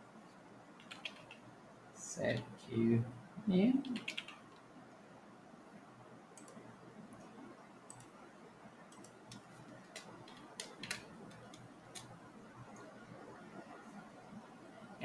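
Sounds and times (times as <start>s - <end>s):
keyboard keys clicking: 0.8s - 1.4s, 3.9s - 4.4s, 8.9s - 12.1s.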